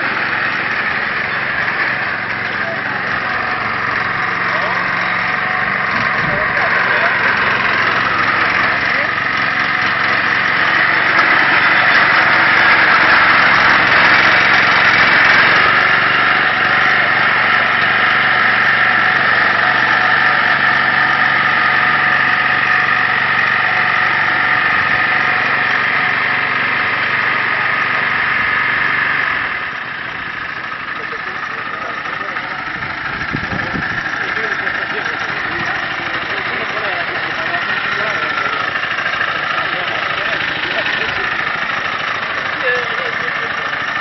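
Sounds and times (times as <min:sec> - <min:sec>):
small model engine running: 0:00.0 - 0:44.0.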